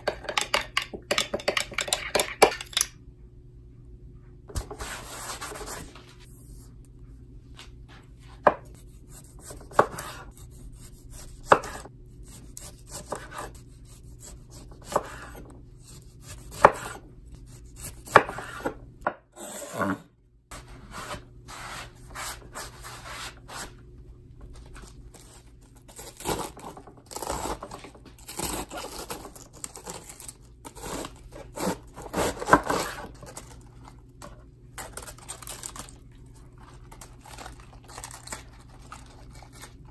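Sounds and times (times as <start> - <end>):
knife slicing tomato on board: 8.4 - 18.8
knife crunching through lettuce: 34.8 - 39.9.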